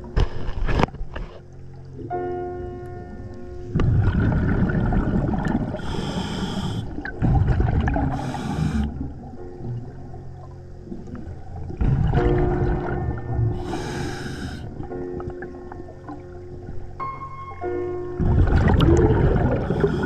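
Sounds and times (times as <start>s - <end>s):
exhaled bubbles gurgling: 3.7s - 17.0s, 18.2s - 20.0s
hissing regulator inhalations: 5.7s - 7.2s, 7.9s - 9.1s, 13.6s - 14.9s, 19.6s - 20.0s.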